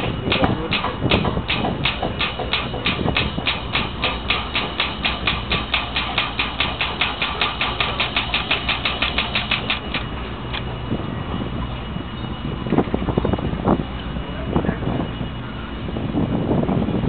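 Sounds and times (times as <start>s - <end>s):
oil pump fast clicking: 0.0s - 10.7s
low steady hum: 0.0s - 17.0s.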